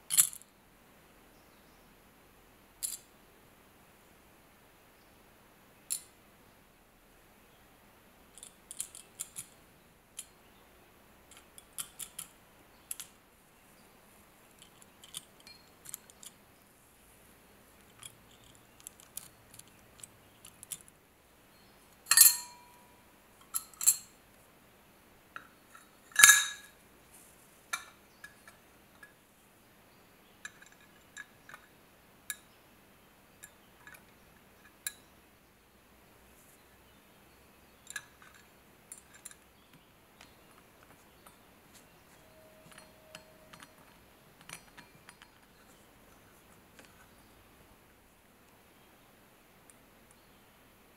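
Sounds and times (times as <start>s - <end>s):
small metal parts clinking: 0.1s - 0.4s, 2.8s - 3.1s, 8.4s - 9.6s, 11.3s - 12.3s, 12.9s - 13.2s, 14.5s - 16.4s, 17.8s - 20.9s, 22.1s - 22.8s, 23.4s - 24.1s, 25.8s - 26.7s, 37.9s - 39.5s, 40.2s - 45.8s
loud metal clinks: 22.1s - 22.9s, 26.2s - 26.7s.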